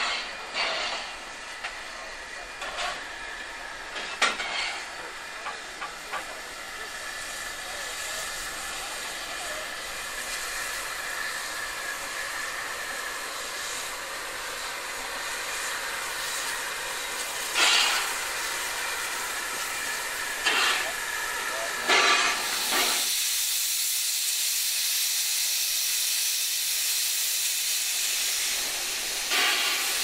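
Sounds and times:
sharp metallic clank: 0:00.0 - 0:01.7, 0:03.9 - 0:06.3, 0:17.5 - 0:18.2, 0:21.8 - 0:23.1
burst of steam: 0:00.0 - 0:30.0
steam locomotives hissing: 0:00.0 - 0:30.0.

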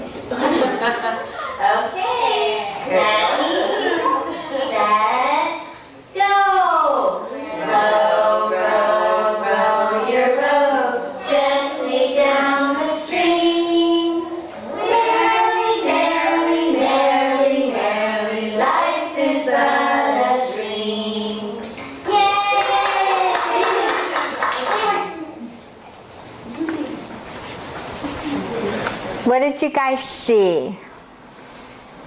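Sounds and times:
children's song over loudspeakers: 0:07.7 - 0:21.7.

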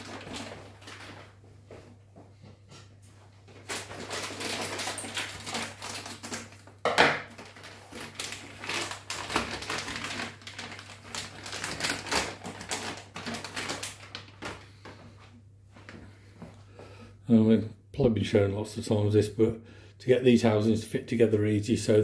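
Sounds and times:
plastic crackling and rustling: 0:00.0 - 0:02.0, 0:02.9 - 0:15.2.

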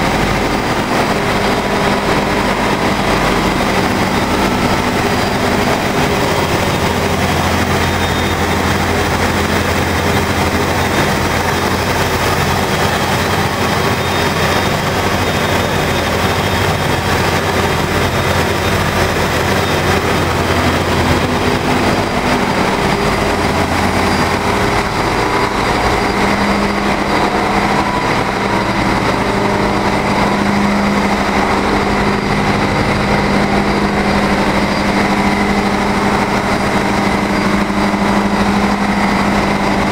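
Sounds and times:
engine-room machinery din: 0:00.0 - 0:39.9
low hum: 0:00.0 - 0:39.9.

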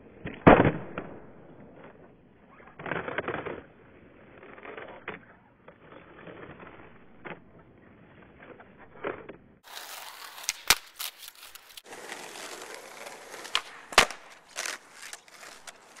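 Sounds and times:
skateboard wheels rolling on asphalt: 0:00.0 - 0:16.0
skateboard clacking on road: 0:09.6 - 0:16.0.

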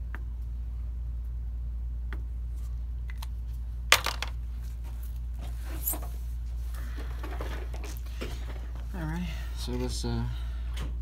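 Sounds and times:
steady low hum: 0:00.0 - 0:11.0
rustling handling noise: 0:03.4 - 0:10.0.

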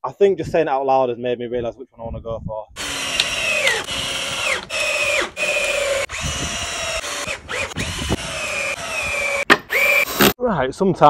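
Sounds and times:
cordless drill whining into wood: 0:02.8 - 0:10.4.

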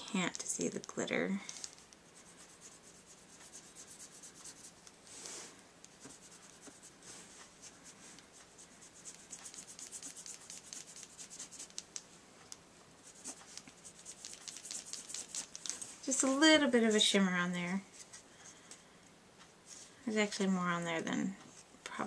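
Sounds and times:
brush pen rubbing on card: 0:02.0 - 0:11.9, 0:13.0 - 0:15.7.

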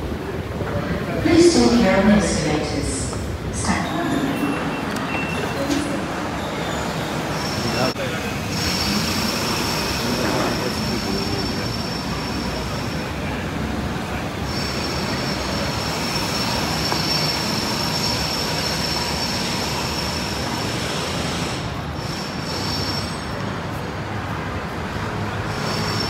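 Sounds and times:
traffic rumble: 0:00.0 - 0:26.0.

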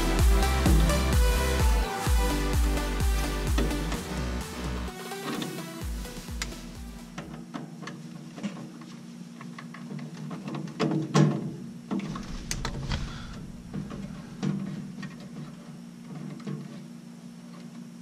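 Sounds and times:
background music: 0:00.0 - 0:07.4.

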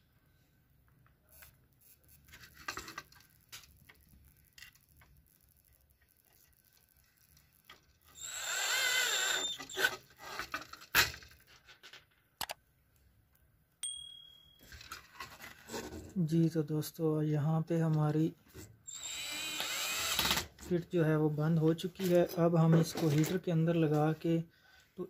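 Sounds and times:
plastic housing clicking and rubbing: 0:01.3 - 0:08.2.

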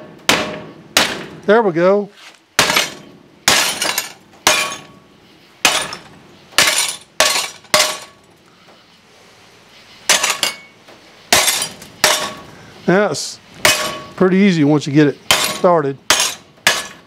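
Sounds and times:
loose glass clattering: 0:02.6 - 0:05.0, 0:05.7 - 0:08.2, 0:10.1 - 0:10.8.

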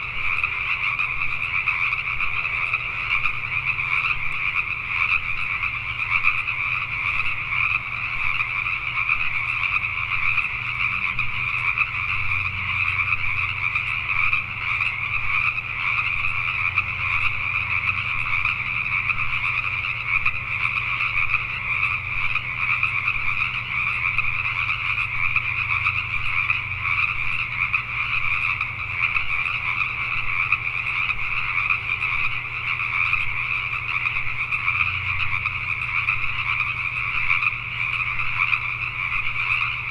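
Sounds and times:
chorus of frogs calling: 0:00.0 - 0:39.9.

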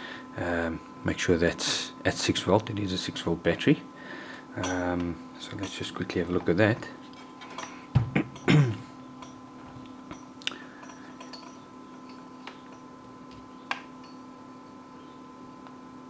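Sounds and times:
faint steady hum: 0:00.0 - 0:16.0
person clearing throat: 0:08.1 - 0:08.9.

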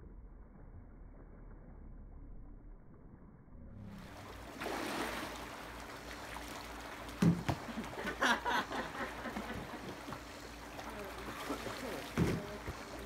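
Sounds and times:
pool water sloshing and splashing: 0:03.8 - 0:13.0.

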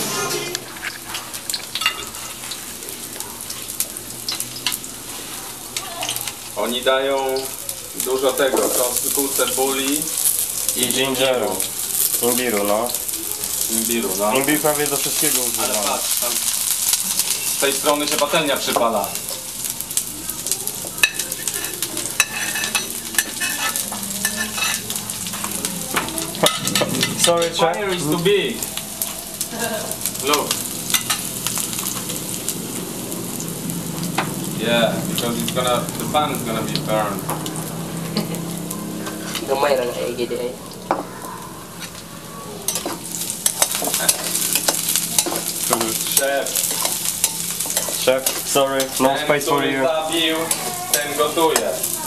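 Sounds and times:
utensil scraping a pan: 0:00.0 - 0:02.6, 0:21.4 - 0:25.5
food sizzling in oil: 0:00.0 - 0:52.0.

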